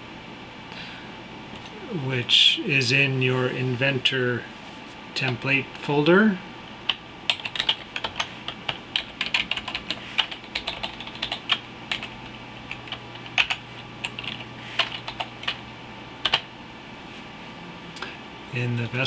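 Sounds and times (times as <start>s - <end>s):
computer keyboard typing: 6.9s - 15.6s, 16.2s - 16.5s.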